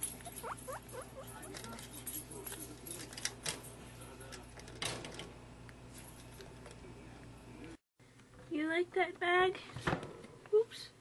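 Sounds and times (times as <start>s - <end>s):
guinea pig squeaking: 0.0s - 2.6s
cage clicks and rattles: 0.0s - 5.4s.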